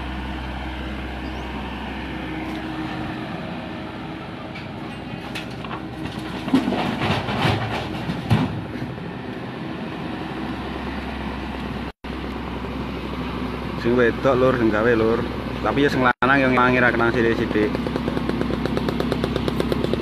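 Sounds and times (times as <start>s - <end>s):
diesel engine running: 0.0s - 20.0s
demolition clattering and knocks: 4.5s - 8.9s.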